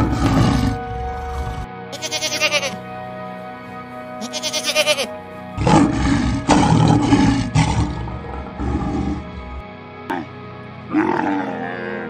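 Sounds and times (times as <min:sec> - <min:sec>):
lion roar: 0:00.0 - 0:01.7, 0:05.6 - 0:12.0
background music: 0:00.0 - 0:12.0
goat bleating: 0:01.9 - 0:02.9, 0:04.2 - 0:05.2.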